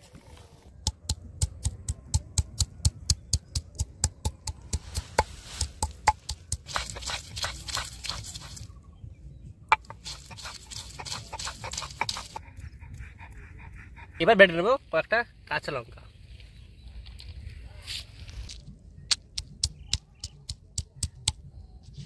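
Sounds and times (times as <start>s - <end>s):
stone tapping on stone: 0.8s - 7.8s, 9.7s - 12.4s
stone scraping over stone: 4.7s - 8.7s, 9.7s - 12.4s.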